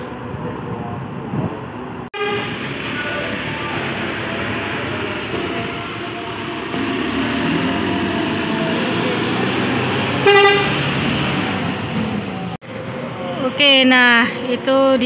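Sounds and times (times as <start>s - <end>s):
bus engine running: 1.6s - 15.0s
short horn toot: 10.2s - 10.8s.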